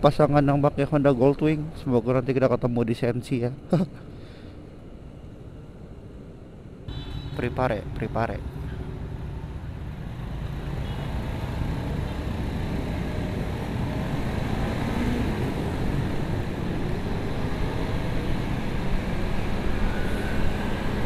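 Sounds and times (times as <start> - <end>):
motorcycle engine accelerating: 11.1 - 19.9.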